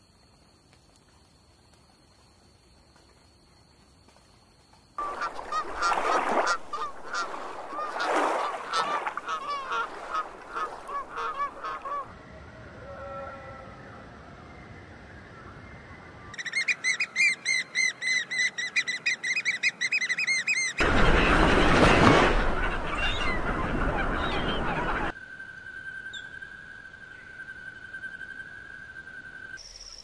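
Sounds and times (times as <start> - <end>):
faint bird calls: 5.0 - 12.1, 22.4 - 25.1
geese honking: 5.0 - 12.1, 20.7 - 25.1.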